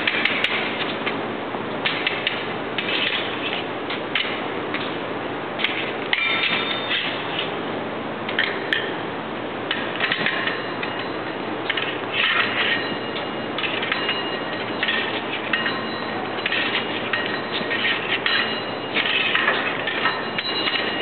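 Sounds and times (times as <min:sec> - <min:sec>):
fencing blades scraping metal: 0:01.9 - 0:04.3, 0:05.6 - 0:07.6, 0:09.7 - 0:21.0.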